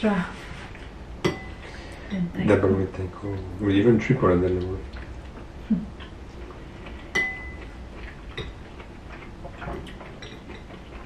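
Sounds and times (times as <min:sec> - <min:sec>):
cutlery clinking on dishes: 0:01.2 - 0:01.6, 0:07.1 - 0:07.7, 0:09.6 - 0:10.8.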